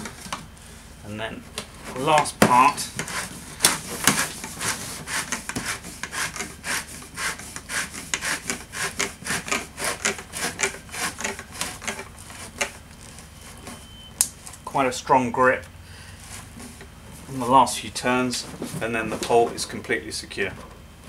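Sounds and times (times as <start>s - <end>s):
plastic grinding on plastic: 1.6s - 13.8s.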